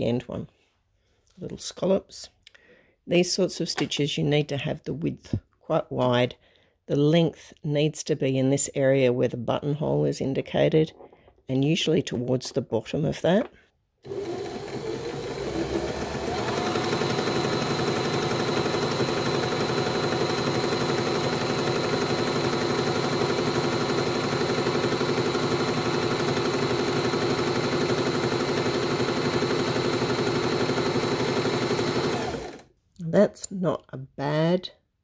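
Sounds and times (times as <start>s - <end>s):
sewing machine stitching: 14.0s - 32.7s.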